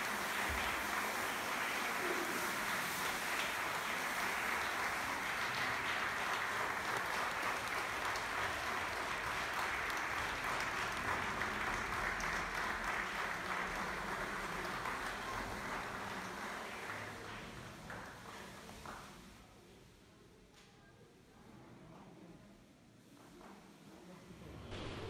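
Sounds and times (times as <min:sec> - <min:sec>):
audience applauding: 0:00.0 - 0:19.0.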